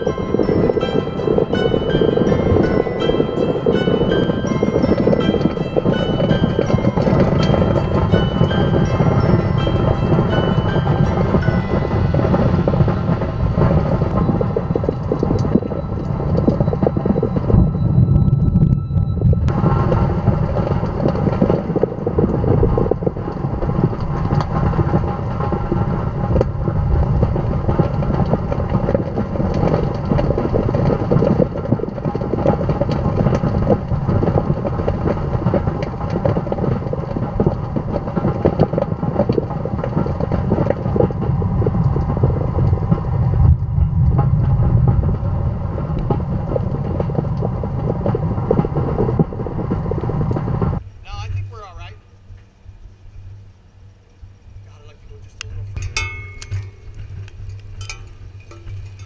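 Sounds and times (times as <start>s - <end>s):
violent wind and heavy rain: 0.0s - 51.8s
rain and debris hitting windshield: 19.5s - 51.8s.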